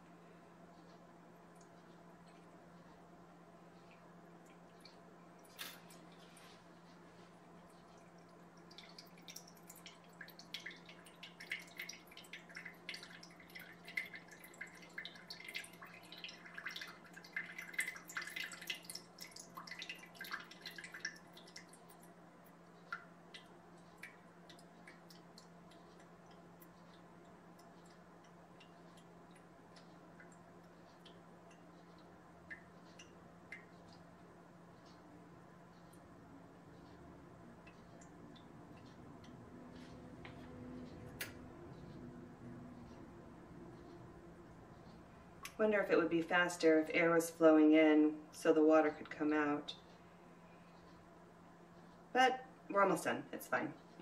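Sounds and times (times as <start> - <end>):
water dripping into bowl: 7.6 - 35.0, 36.8 - 39.6.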